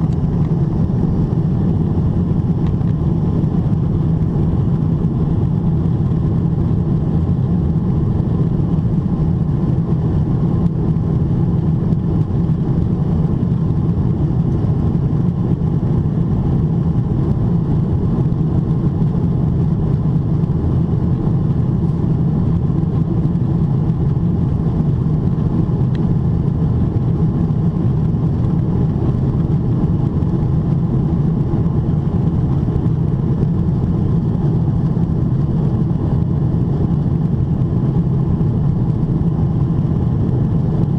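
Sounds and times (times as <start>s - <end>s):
airplane cabin engine noise: 0.0s - 40.9s.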